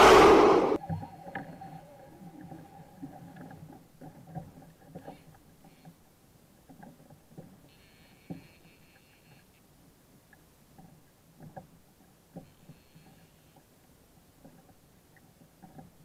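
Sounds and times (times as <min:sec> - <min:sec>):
rod and reel clicks and knocks: 0:14.3 - 0:16.0.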